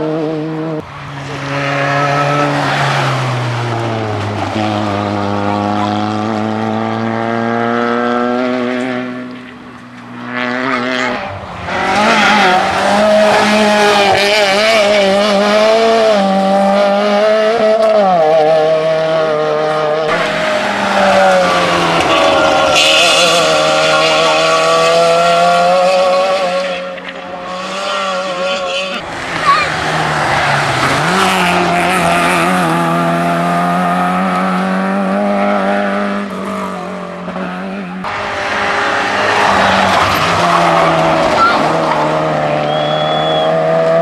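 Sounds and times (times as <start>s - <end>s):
rally car engines revving: 0.0s - 44.0s.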